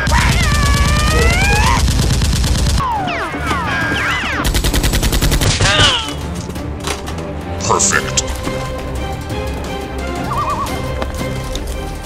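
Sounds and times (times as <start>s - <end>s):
rapid automatic gunfire: 0.0s - 2.9s, 4.4s - 5.9s.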